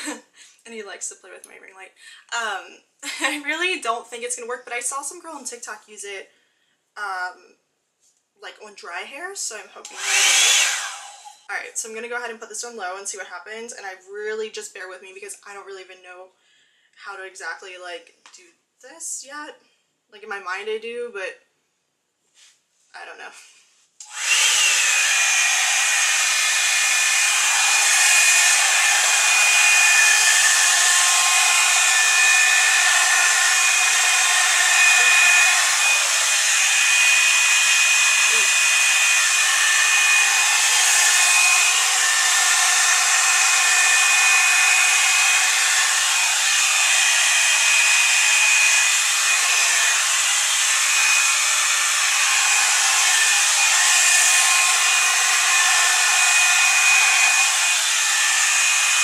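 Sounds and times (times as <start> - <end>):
hot-air brush running: 9.8 - 11.5, 24.0 - 59.0.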